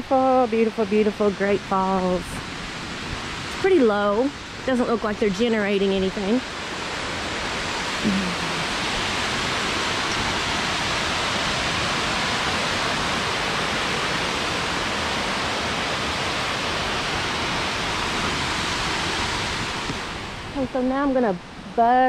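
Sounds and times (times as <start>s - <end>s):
waterfall rushing: 0.0s - 21.7s.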